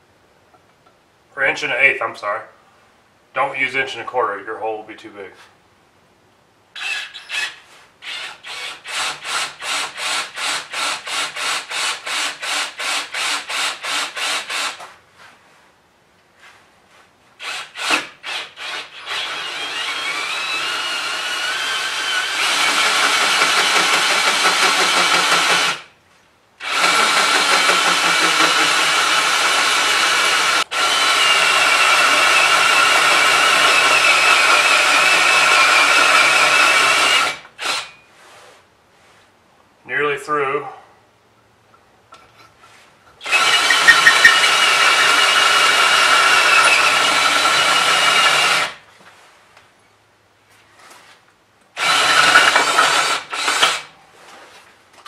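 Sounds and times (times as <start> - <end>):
drill hole saw cutting metal: 6.8 - 14.8, 17.4 - 25.9, 26.6 - 38.0, 43.2 - 48.8, 51.8 - 53.8.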